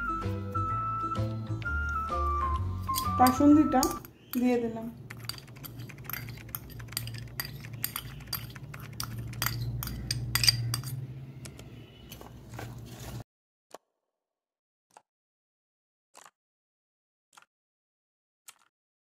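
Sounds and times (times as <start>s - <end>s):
utensil scraping metal bowl: 5.1s - 11.0s.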